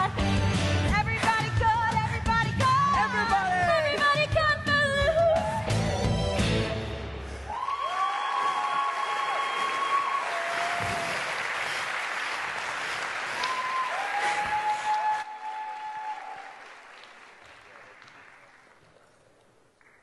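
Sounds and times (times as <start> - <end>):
crowd whooping: 7.5 - 11.4, 13.3 - 16.8
audience applauding: 7.5 - 20.0.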